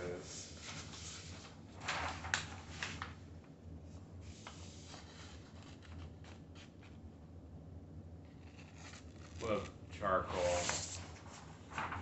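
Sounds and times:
low steady hum: 0:00.0 - 0:12.0
paper rustling and crackling: 0:00.6 - 0:03.2, 0:04.3 - 0:07.0, 0:08.3 - 0:09.7, 0:10.3 - 0:12.0.

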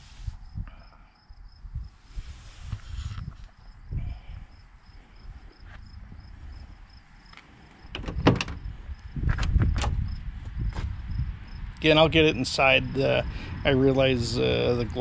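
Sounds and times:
car door latch clicking: 0:07.9 - 0:08.7, 0:09.4 - 0:10.0.

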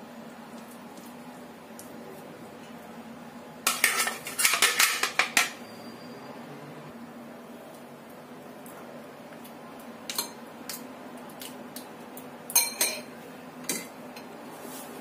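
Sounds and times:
spoons clinking against bowl: 0:12.5 - 0:13.1.

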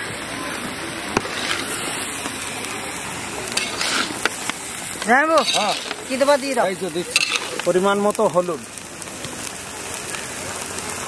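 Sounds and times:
vegetables sizzling in oil: 0:00.0 - 0:11.0
lid and ladle clicking on pan: 0:07.1 - 0:07.6.

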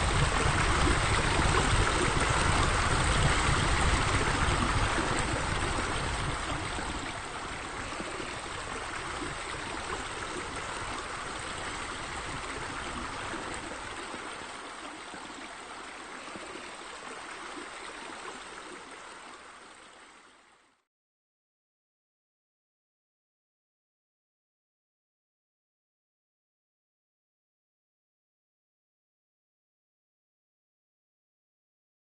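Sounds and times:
running water: 0:00.0 - 0:20.8.

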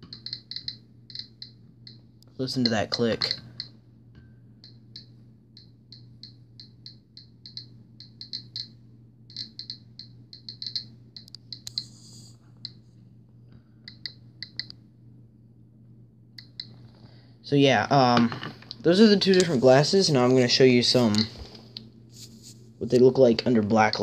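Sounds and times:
geiger counter clicking: 0:00.0 - 0:03.8, 0:04.6 - 0:12.0, 0:13.8 - 0:14.8, 0:16.4 - 0:16.8, 0:22.9 - 0:24.0.

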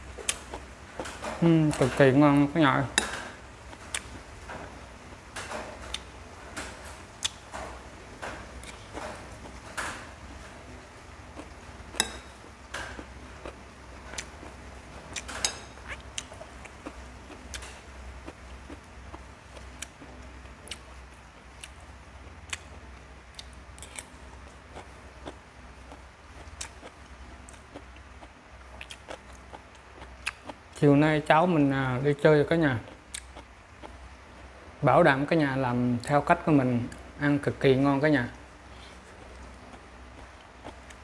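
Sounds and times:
low steady hum: 0:00.0 - 0:41.0.

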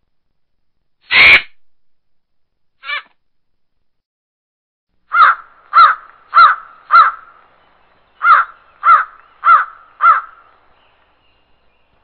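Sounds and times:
crow cawing: 0:05.1 - 0:07.4, 0:08.2 - 0:10.6.

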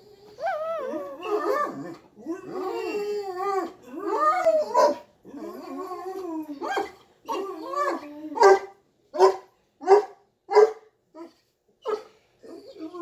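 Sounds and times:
dog howl-like moaning: 0:00.0 - 0:06.7, 0:07.3 - 0:08.4.

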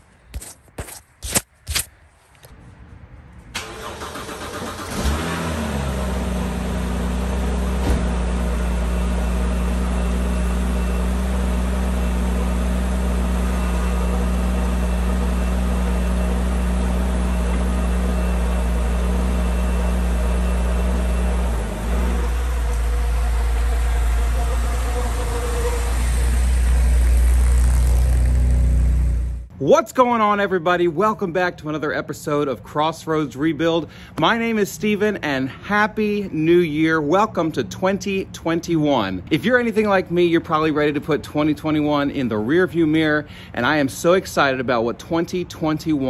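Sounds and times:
car engine starting and idling: 0:03.5 - 0:29.5.

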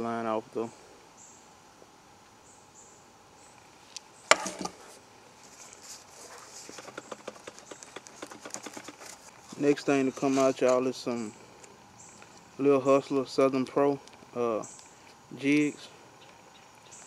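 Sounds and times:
insects chirping: 0:00.6 - 0:17.0
cardboard tube crackling: 0:04.3 - 0:10.7.

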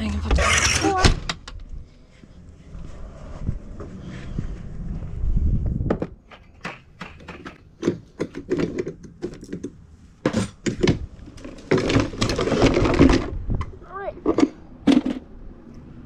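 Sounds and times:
rustling and scraping: 0:00.0 - 0:13.6
equipment knocking and clattering: 0:05.9 - 0:13.4.

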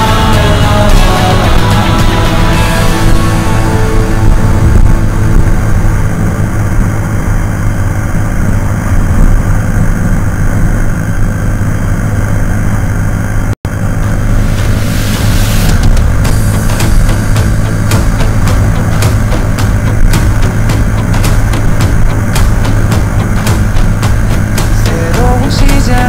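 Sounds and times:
music with drum hits: 0:00.0 - 0:05.8, 0:14.4 - 0:26.0
motorcycle engine cruising: 0:00.0 - 0:26.0
wind noise on microphone: 0:00.9 - 0:11.8, 0:14.0 - 0:26.0.

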